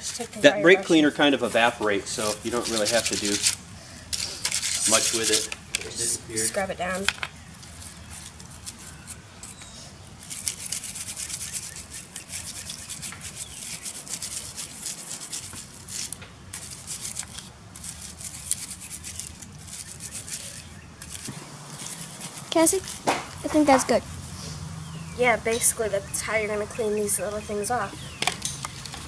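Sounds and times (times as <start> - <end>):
wire brush scrubbing metal: 1.4 - 5.6, 7.7 - 23.8.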